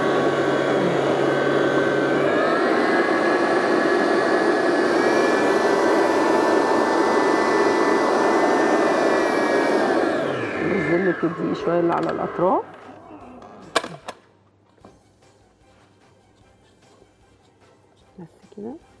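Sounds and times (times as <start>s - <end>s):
stand mixer motor whining: 0.0s - 12.9s.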